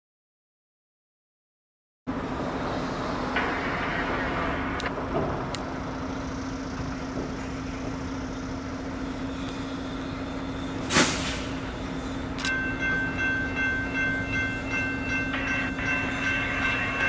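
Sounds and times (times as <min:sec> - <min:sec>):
low vehicle hum: 0:02.1 - 0:14.4
short loud rush of noise: 0:10.9 - 0:11.6.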